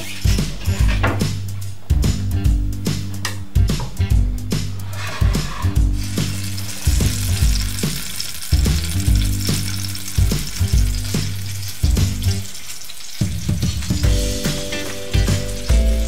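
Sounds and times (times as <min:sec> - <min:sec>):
tomatoes sizzling in frying pan: 0:05.6 - 0:16.0.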